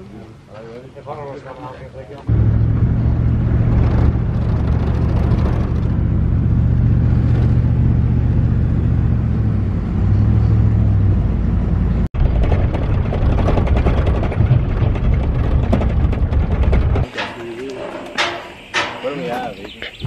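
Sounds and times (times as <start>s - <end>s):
van engine and road drone: 2.2s - 17.1s.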